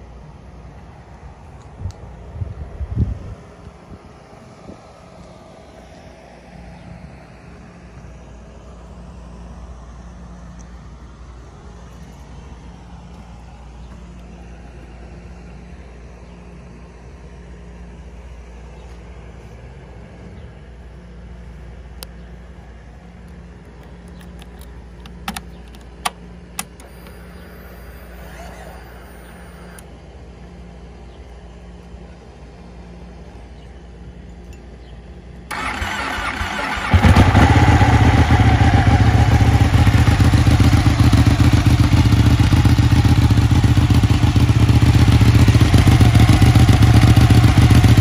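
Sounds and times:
low outdoor rumble: 0.0 - 48.0
ignition clicks: 23.8 - 29.9
thin whine: 26.6 - 29.9.

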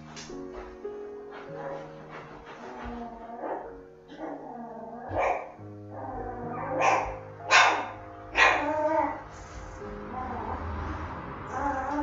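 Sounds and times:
background music: 0.0 - 12.0
dog barking: 1.3 - 4.5, 5.1 - 5.6, 6.5 - 8.7.

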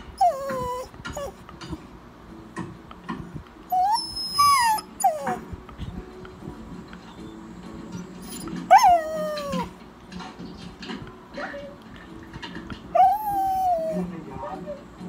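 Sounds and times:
dog whining: 0.0 - 1.5, 3.7 - 5.6, 7.0 - 9.8, 12.8 - 15.0.

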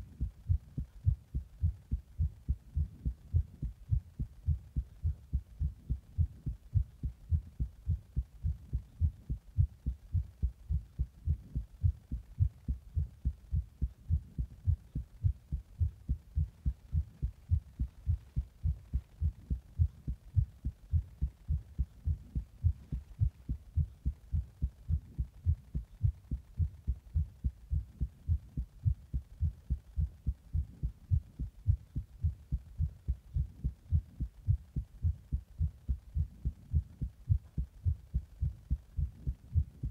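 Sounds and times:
heart beating: 0.0 - 39.9.

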